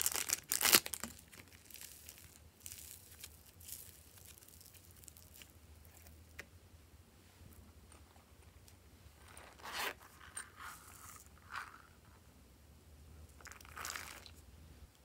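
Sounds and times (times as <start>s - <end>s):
sprinkles scattering: 0.0s - 5.5s.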